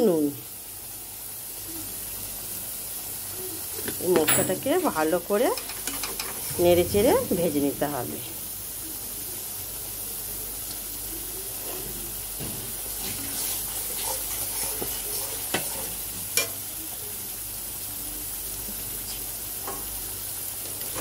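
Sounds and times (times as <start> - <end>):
paste sizzling in oil: 0.0 - 21.0
metal spatula scraping pan: 5.5 - 8.2, 13.0 - 16.6.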